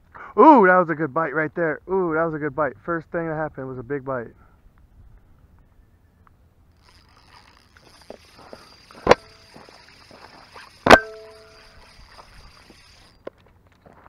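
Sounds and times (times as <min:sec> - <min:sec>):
faint high whine: 0:05.6 - 0:14.0
sharp metallic clanks with ringing: 0:08.9 - 0:13.1.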